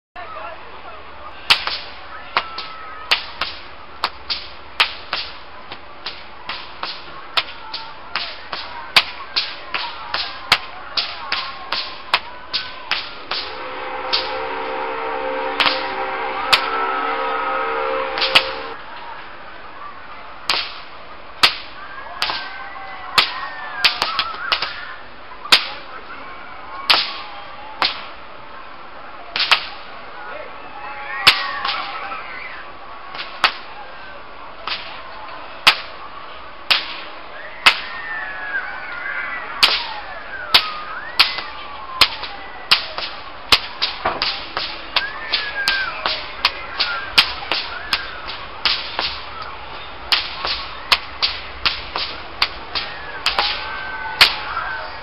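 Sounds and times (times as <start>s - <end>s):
whip cracking: 1.5s - 14.4s, 15.6s - 15.9s, 18.2s - 18.8s, 20.5s - 22.5s, 23.2s - 24.8s, 26.9s - 28.1s, 29.4s - 29.8s, 31.3s - 32.0s, 34.6s - 35.0s, 35.6s - 35.9s, 36.7s - 37.9s, 39.6s - 54.6s.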